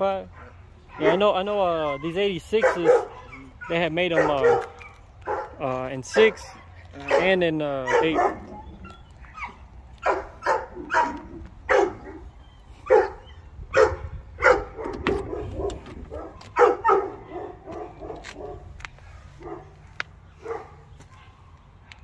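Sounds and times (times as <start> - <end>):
dogs barking: 0.2 - 21.6.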